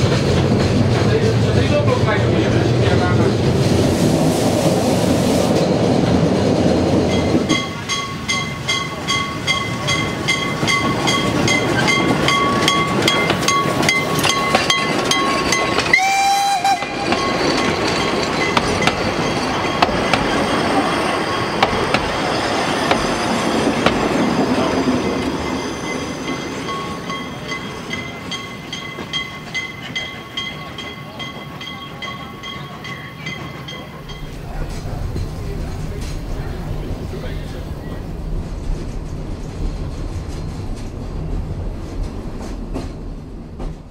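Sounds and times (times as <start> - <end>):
train wheels clicking over rail joints: 0.0 - 3.6, 5.5 - 43.9.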